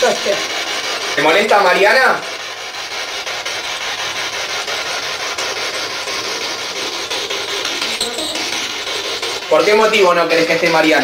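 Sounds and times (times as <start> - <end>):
choppy radio static: 5.9 - 11.0.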